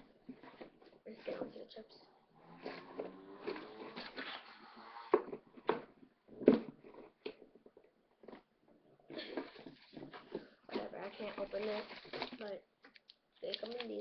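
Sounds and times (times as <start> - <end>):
plastic packets crinkling: 10.8 - 14.0.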